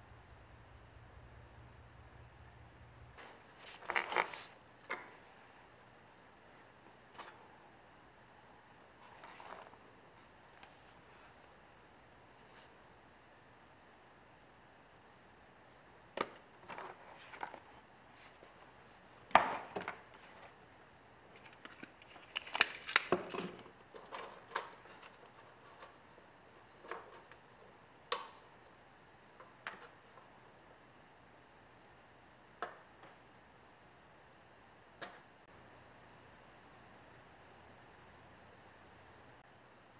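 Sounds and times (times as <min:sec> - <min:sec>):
room hiss: 0:00.0 - 0:21.5.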